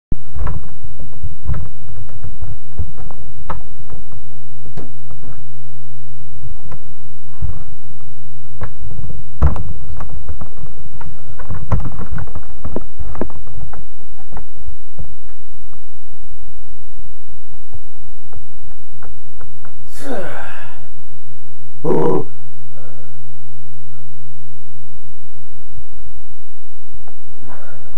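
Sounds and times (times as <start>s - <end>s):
steady low hum: 0.1s - 27.9s
knocks creaks and rustles on futon: 0.2s - 5.5s, 9.4s - 15.8s.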